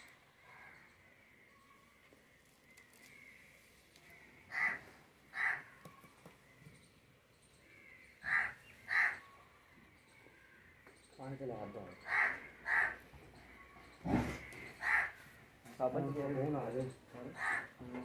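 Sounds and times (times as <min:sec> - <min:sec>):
crow cawing: 0:03.0 - 0:06.2, 0:07.8 - 0:09.3, 0:12.0 - 0:13.1, 0:14.2 - 0:15.6, 0:17.2 - 0:17.8.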